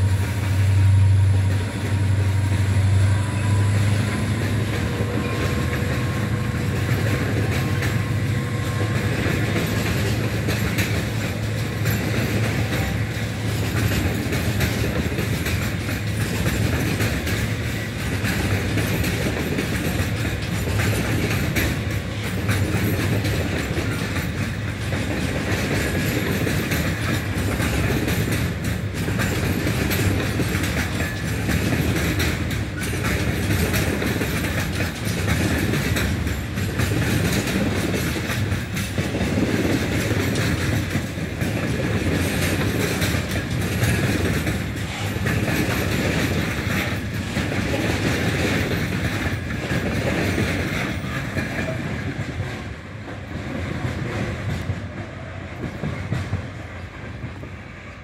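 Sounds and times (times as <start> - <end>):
wheels clacking over rails: 0.0 - 57.6
train wagons rolling past: 0.0 - 58.0.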